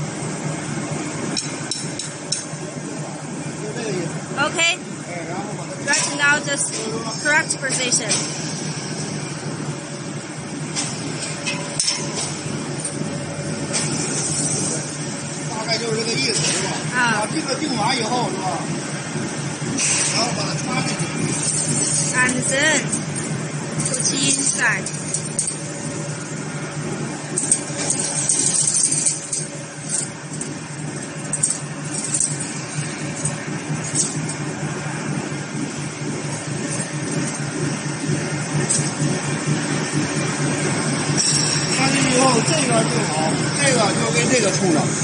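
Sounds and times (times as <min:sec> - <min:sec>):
low machine hum: 0:00.0 - 0:45.0
wire mesh rattling and scraping: 0:27.4 - 0:34.4.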